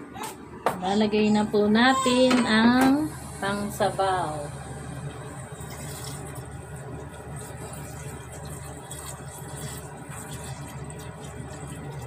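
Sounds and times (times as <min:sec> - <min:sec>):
steady low hum: 0:00.0 - 0:12.0
liquid trickling and splashing: 0:05.6 - 0:12.0.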